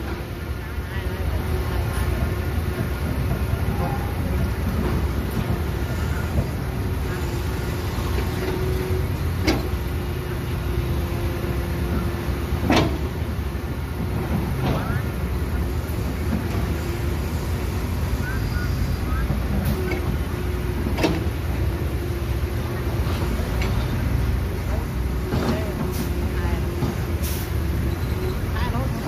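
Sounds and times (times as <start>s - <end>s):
diesel engines running: 0.0s - 29.0s.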